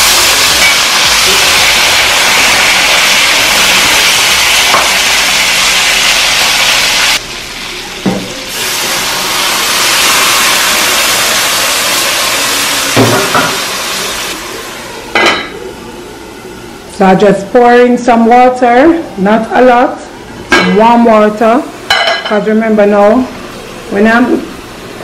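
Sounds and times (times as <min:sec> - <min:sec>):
water hissing on hot pot: 0:00.0 - 0:15.1
meat sizzling in a pot: 0:00.0 - 0:15.2.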